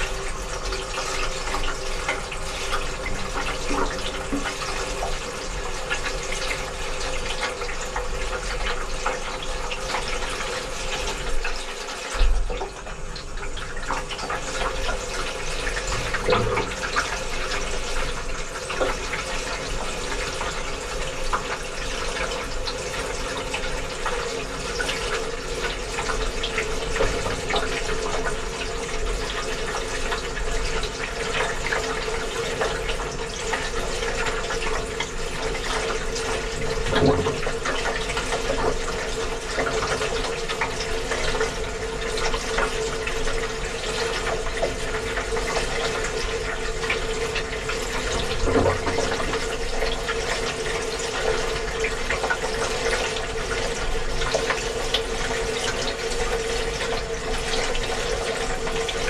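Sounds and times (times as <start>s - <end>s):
running water in washing machine: 0.0s - 59.0s
washing machine hum: 0.0s - 59.0s
washing machine drum knock: 15.8s - 17.6s, 26.9s - 28.4s, 36.4s - 38.9s, 48.0s - 50.2s.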